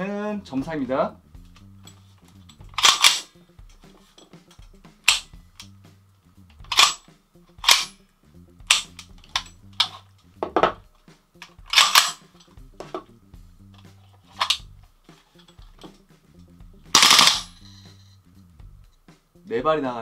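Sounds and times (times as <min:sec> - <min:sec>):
airsoft rifle shots: 0:02.8 - 0:03.3, 0:07.6 - 0:07.9, 0:11.7 - 0:12.2, 0:17.0 - 0:17.5.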